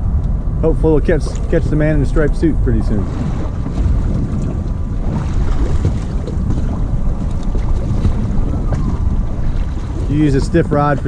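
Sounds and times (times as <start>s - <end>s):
water washing past hull: 0.0s - 11.0s
wind rumbling on microphone: 0.0s - 11.0s
outboard motor running: 0.7s - 11.0s.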